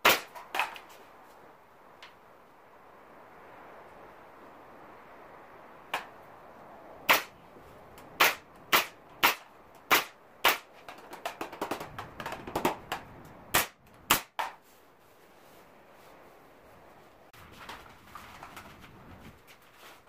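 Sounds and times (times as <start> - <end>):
nail gun firing: 8.2 - 10.7, 13.5 - 14.5.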